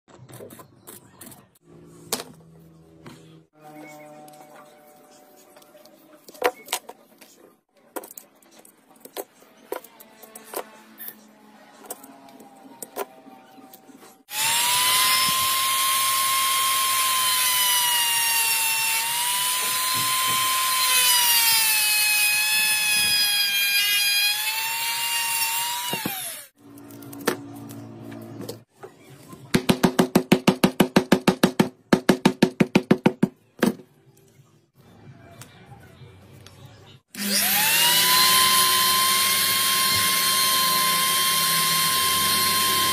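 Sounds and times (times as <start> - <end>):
rotary tool cutting disc whine: 14.3 - 26.6, 37.2 - 42.9.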